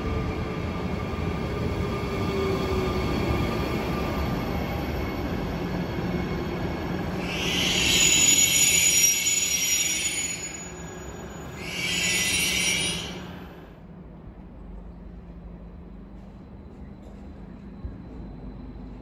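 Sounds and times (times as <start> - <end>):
train rumbling: 0.0 - 19.0
train wheels squealing: 1.9 - 13.6, 15.8 - 19.0.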